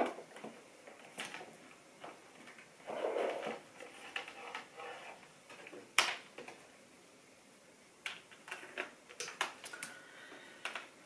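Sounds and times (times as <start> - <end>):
rustling scrape: 2.8 - 5.3.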